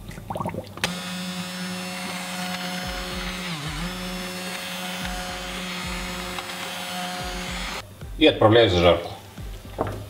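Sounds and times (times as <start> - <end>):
immersion blender motor whining: 0.8 - 7.8.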